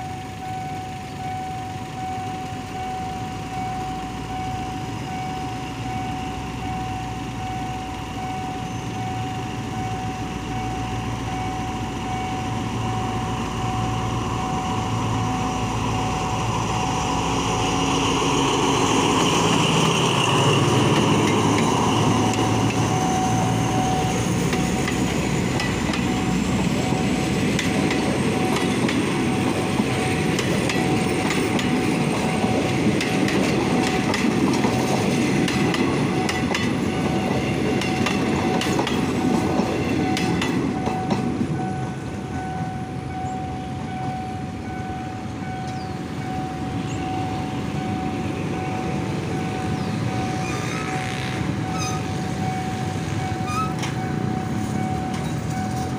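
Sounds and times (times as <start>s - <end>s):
level-crossing warning bell: 0.0s - 55.9s
train passing with rumble: 0.0s - 55.9s
wheels clacking over rail joints: 18.8s - 41.8s, 50.1s - 55.9s.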